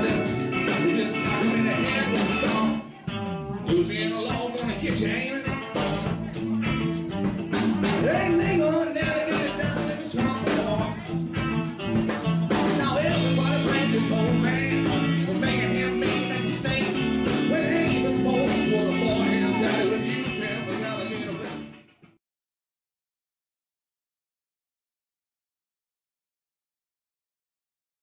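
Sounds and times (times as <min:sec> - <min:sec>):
drum beat: 0:00.0 - 0:02.8, 0:03.7 - 0:21.1
electric guitar: 0:00.0 - 0:22.2.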